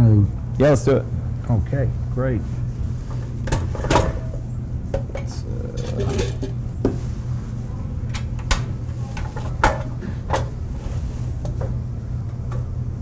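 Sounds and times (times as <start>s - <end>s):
steady low hum: 0.0s - 13.0s
pans and utensils clinking: 3.5s - 4.3s, 5.0s - 6.6s.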